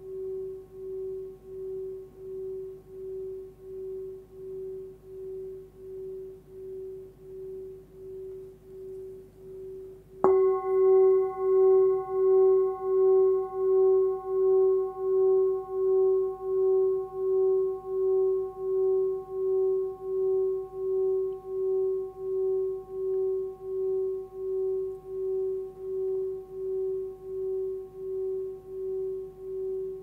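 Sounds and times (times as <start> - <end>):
singing bowl ringing: 0.0 - 30.0
singing bowl struck: 10.2 - 25.4.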